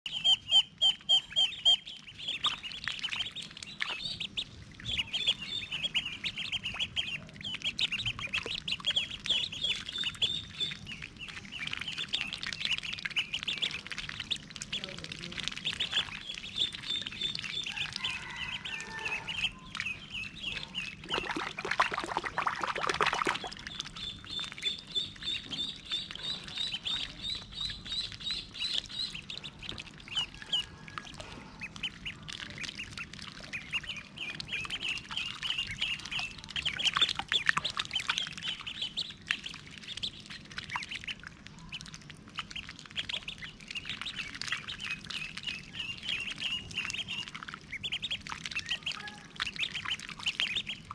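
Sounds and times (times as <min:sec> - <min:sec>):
ducklings peeping: 0:00.1 - 0:50.9
water splashing: 0:00.2 - 0:50.9.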